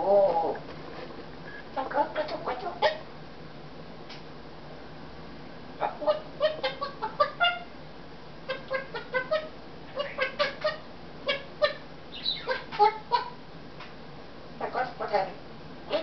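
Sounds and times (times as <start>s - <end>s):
parrot calling: 1.5s - 3.1s, 5.8s - 7.7s, 8.4s - 13.4s, 14.6s - 16.0s.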